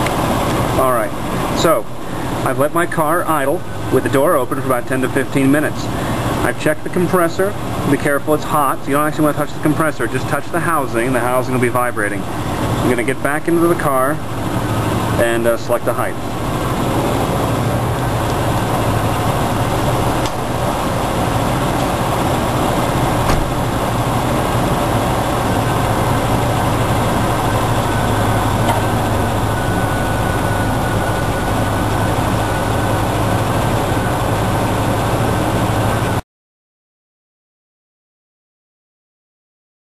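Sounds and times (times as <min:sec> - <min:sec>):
car engine idling: 0:00.0 - 0:36.2
faint high whine: 0:00.7 - 0:36.2
car door shutting: 0:23.2 - 0:23.6, 0:28.6 - 0:28.9.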